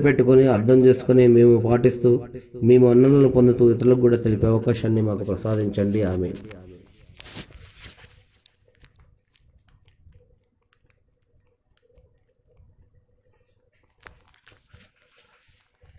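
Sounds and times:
rustling: 5.2 - 12.7, 13.3 - 15.9
faint clicks: 8.4 - 14.9.

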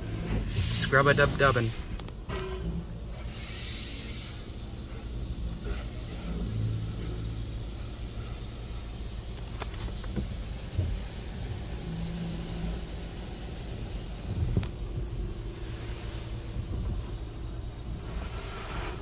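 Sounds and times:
water spray drumming on car: 0.0 - 1.8, 3.1 - 19.0
steady low rumble: 0.0 - 19.0
brushes thumping car: 4.4 - 19.0.

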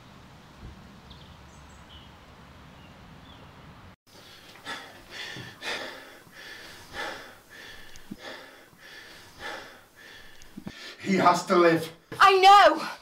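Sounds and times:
person gasping heavily: 4.1 - 11.0.

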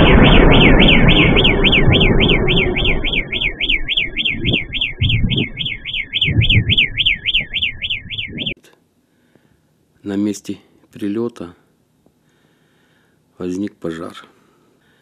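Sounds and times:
car alarm wailing: 0.0 - 8.6
explosion rumble: 0.0 - 8.6
low bumps of noise: 0.0 - 8.6.

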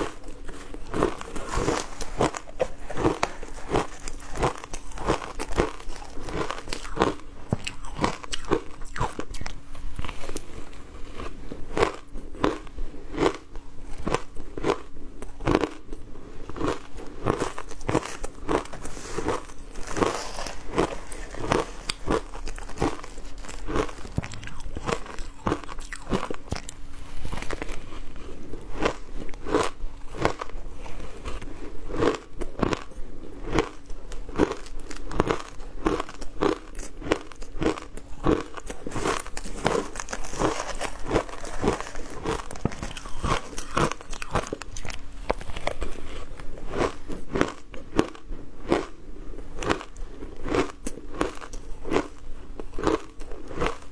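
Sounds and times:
shaved ice crunching: 17.2 - 27.7, 38.3 - 45.0.

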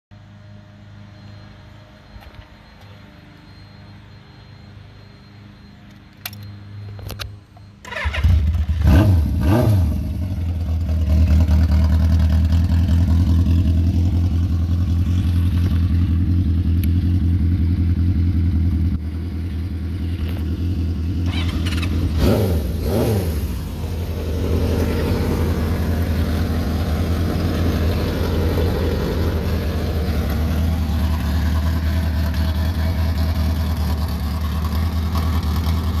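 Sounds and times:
engine blips: 0.2 - 36.0
motorcycle engine starting: 7.8 - 36.0.

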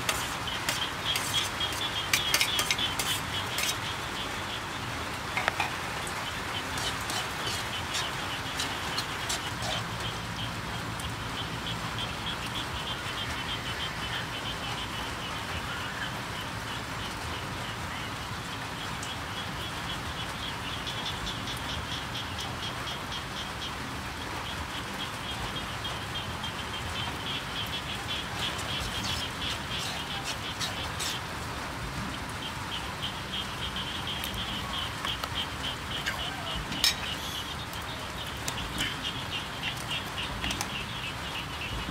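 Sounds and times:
metal spoon stirring: 0.0 - 3.8, 6.7 - 9.8, 28.4 - 31.2.

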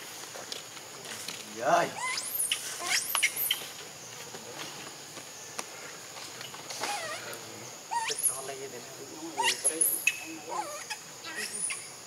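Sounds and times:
infant monkey squealing: 1.9 - 3.8, 6.8 - 8.5, 9.2 - 12.0.

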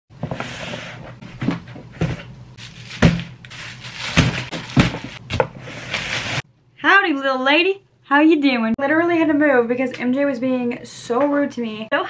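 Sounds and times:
packaging rustling: 2.6 - 6.4
boxes thumping on wooden desk: 4.2 - 5.6.

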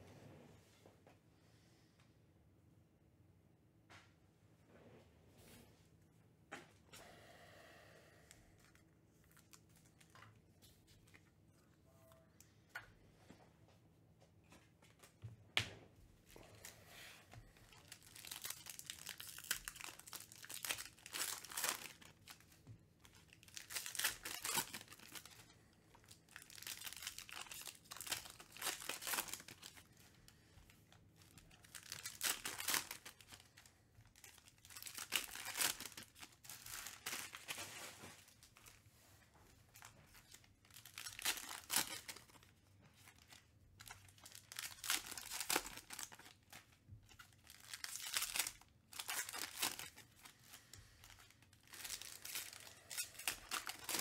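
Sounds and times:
foil packs tearing and crinkling: 17.7 - 22.5, 23.2 - 30.0, 31.2 - 33.6, 34.2 - 38.7, 40.2 - 50.4, 51.0 - 54.0.

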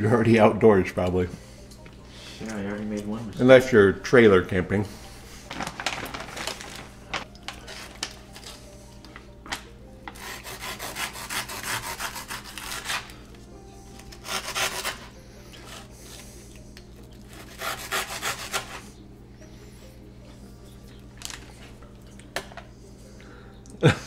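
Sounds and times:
knife sawing through crunchy bread: 10.1 - 13.2, 14.1 - 15.9, 17.3 - 18.9.

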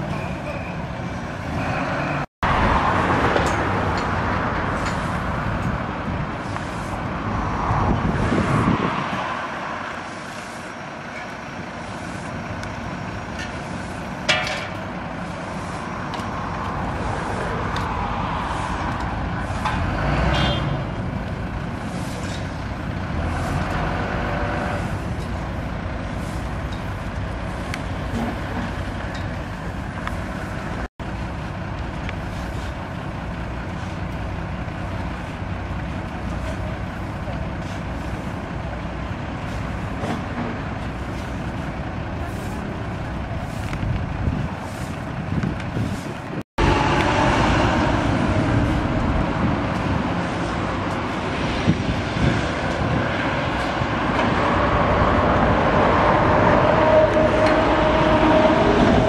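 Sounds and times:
passing road traffic: 0.0 - 59.0
truck engines rumbling: 0.0 - 59.0
shovels scraping gravel: 32.2 - 32.9.

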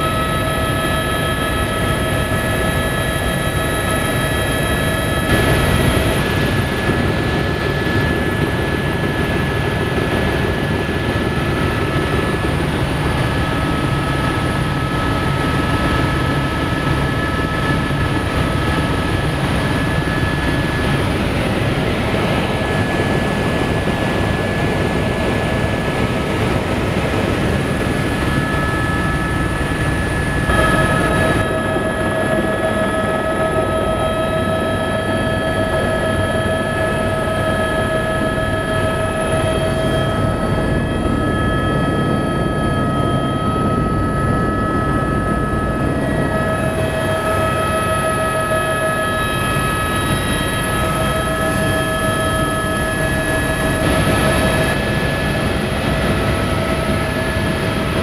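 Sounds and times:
helicopter rotor and engine drone: 0.0 - 58.0
high whining tones: 27.0 - 57.8.

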